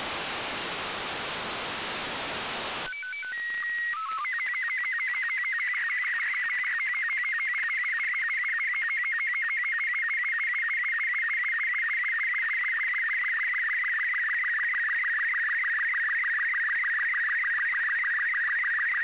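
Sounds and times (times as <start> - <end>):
radio hiss: 0.0 - 4.3.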